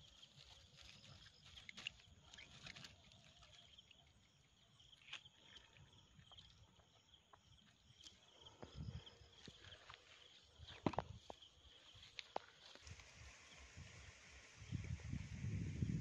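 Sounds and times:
hands handling fish and line: 0.0 - 4.1, 4.9 - 6.5
insects chirring: 0.0 - 16.0.

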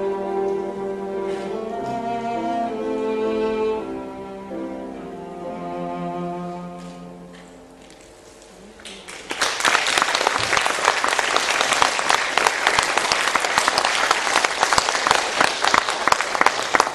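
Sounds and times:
audience applause: 8.8 - 16.9.

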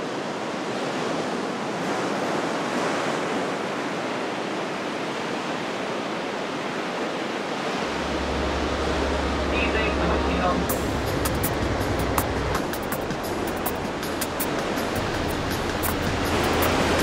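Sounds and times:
steady rushing noise: 6.4 - 17.0
low steady hum: 7.7 - 14.1.

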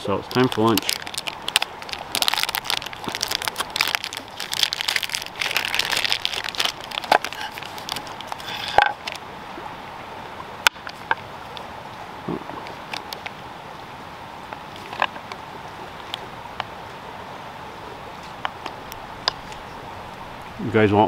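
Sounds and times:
plastic wrapper crinkling: 0.0 - 9.2.

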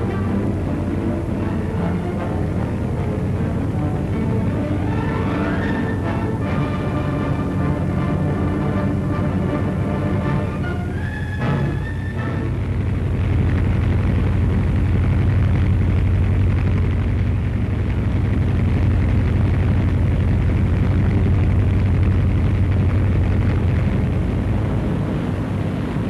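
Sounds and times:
aircraft engines droning: 0.0 - 26.0.

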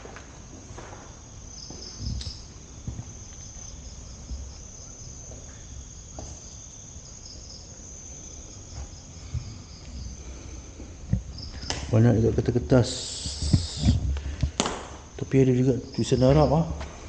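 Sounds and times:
night insects trilling: 0.0 - 17.0
soft low thumps: 10.8 - 14.6.

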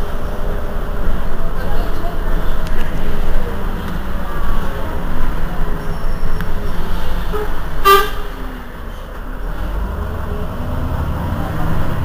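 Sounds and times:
bus engine idling: 0.0 - 12.0
short horn toot: 7.2 - 8.4.

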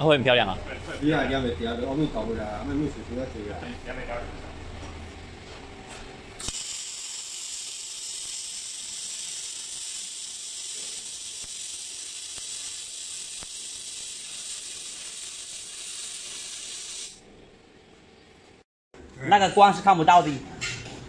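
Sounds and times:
welder arc click: 6.4 - 14.2
welding arc hissing: 6.4 - 17.2.

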